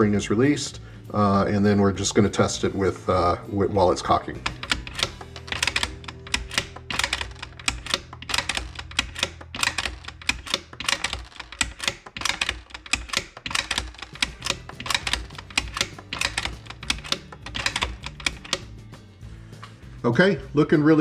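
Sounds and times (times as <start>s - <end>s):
rifle bolt metallic clacks: 4.3s - 18.8s.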